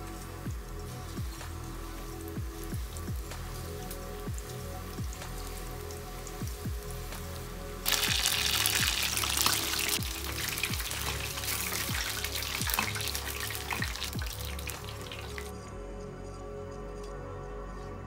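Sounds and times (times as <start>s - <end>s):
chicken deep-frying in oil: 0.0s - 15.6s.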